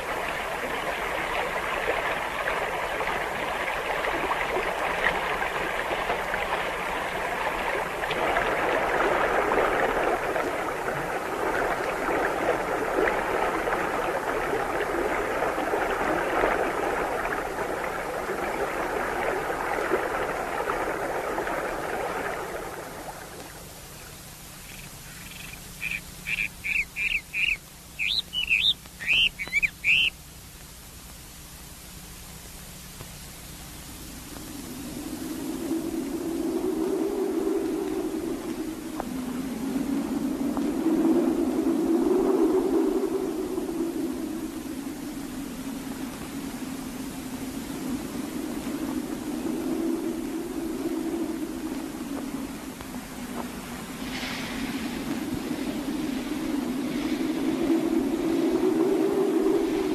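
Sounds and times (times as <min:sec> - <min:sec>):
bird chirping: 0:24.6 - 0:30.2.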